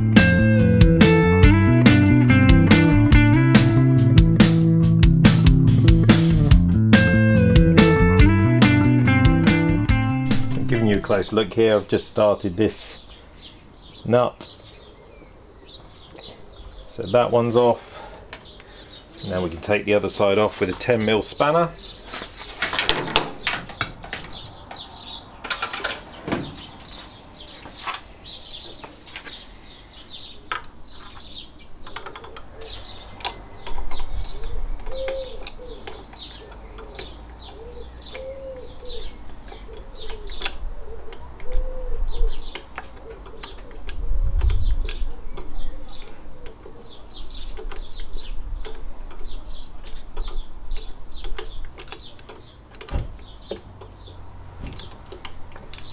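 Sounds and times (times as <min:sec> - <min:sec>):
birds chirping: 0:00.0 - 0:55.9
spanner clicking on metal nut: 0:31.8 - 0:41.7, 0:42.4 - 0:46.6, 0:47.4 - 0:54.0, 0:54.7 - 0:55.9
low cooing call: 0:32.1 - 0:47.6.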